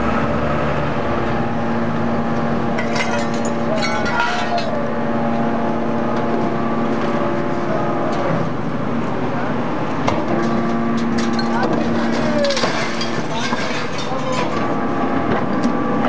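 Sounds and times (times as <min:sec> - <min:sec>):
baler machine hum: 0:00.0 - 0:16.0
scrap metal crackling and crunching: 0:02.6 - 0:05.8, 0:10.2 - 0:15.2.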